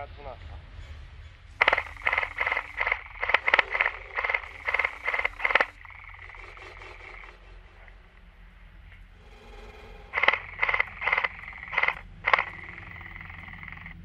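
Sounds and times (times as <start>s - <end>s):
faint continuous rattle: 0.0s - 14.0s
airsoft guns firing rapid bursts: 1.6s - 7.3s, 10.2s - 14.0s.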